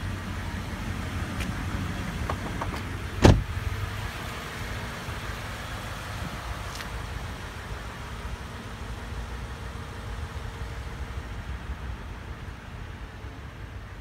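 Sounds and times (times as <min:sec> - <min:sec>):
latch clicks: 0:02.2 - 0:03.4
truck door thump: 0:02.2 - 0:03.6.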